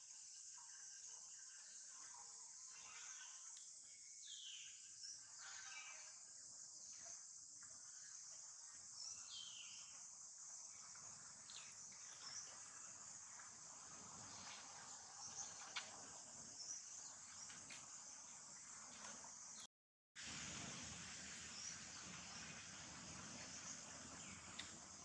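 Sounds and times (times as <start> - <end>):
high-pitched insect chorus: 0.0 - 19.7.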